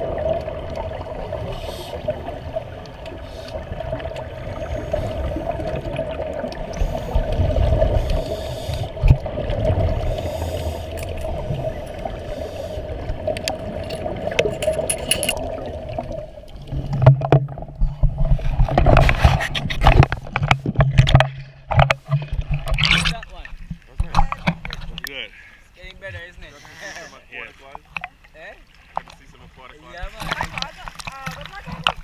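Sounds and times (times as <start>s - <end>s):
bubbly crackles: 0.0s - 20.3s
muffled underwater rumble: 0.0s - 25.0s
water splashing: 0.0s - 32.0s.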